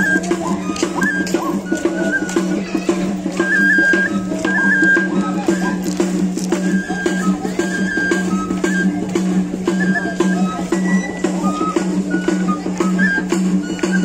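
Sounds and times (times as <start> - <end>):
drum beating quick rhythm: 0.0 - 14.0
high flute playing: 0.0 - 14.0.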